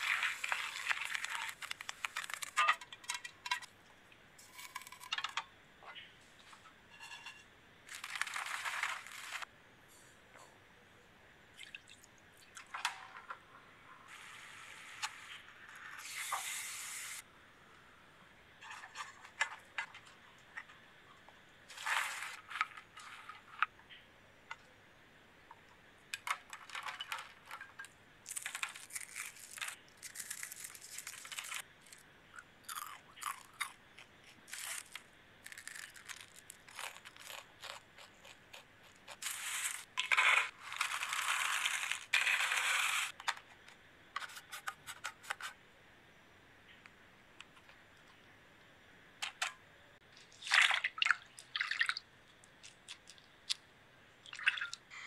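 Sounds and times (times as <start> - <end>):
popcorn crackling and rattling: 0.0 - 3.7, 4.4 - 5.5, 7.1 - 9.5, 21.7 - 23.8, 26.1 - 45.6.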